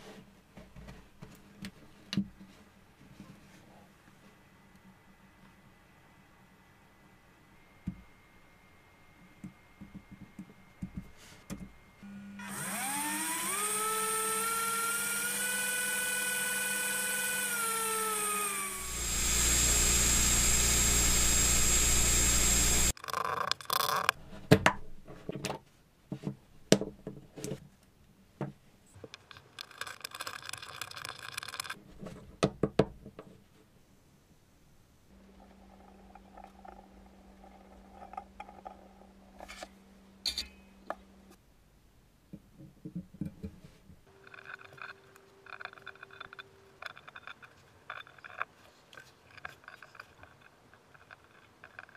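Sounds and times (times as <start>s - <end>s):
electric motor propeller whine: 12.0s - 22.9s.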